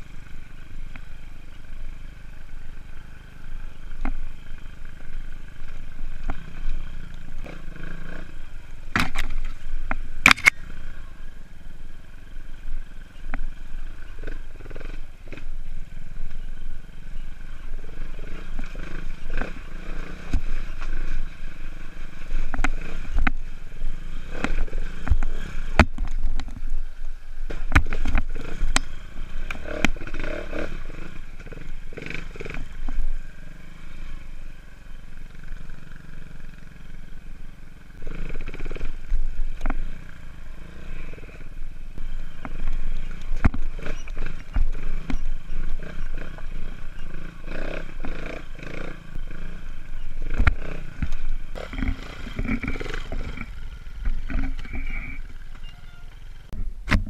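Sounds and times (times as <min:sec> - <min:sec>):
motorcycle engine revving: 0:00.0 - 0:57.0
bike knocking against rocks: 0:42.4 - 0:46.4.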